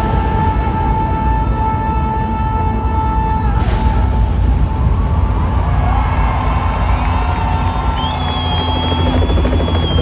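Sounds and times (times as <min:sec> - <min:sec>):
helicopter rotor throb: 0:06.5 - 0:10.0
high whistle-like tone: 0:07.8 - 0:10.0.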